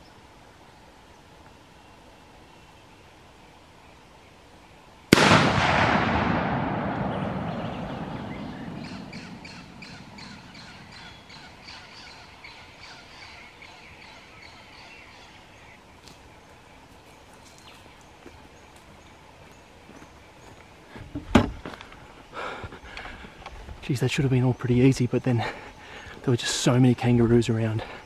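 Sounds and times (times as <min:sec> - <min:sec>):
rifle shot with rolling echo: 0:05.1 - 0:11.6
bird calling rapidly: 0:07.1 - 0:15.8.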